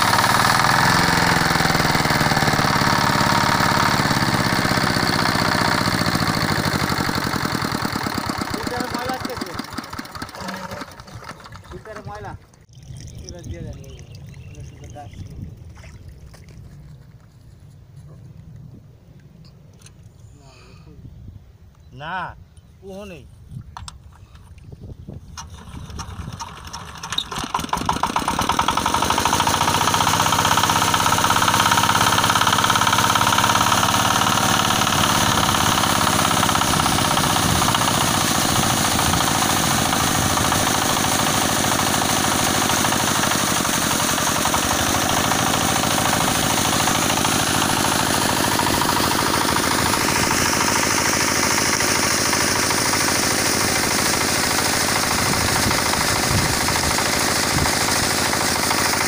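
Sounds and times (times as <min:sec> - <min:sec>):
diesel pump engine running: 0:00.0 - 0:15.1, 0:25.4 - 0:59.0
water splashing out: 0:09.6 - 0:16.8.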